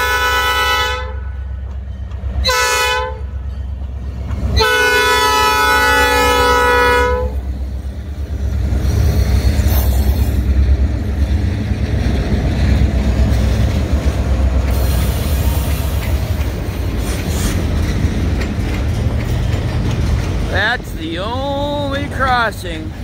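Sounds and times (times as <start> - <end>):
diesel locomotives rumbling: 0.0 - 23.0
rail noise: 0.0 - 23.0
wheels clacking over rails: 7.4 - 23.0.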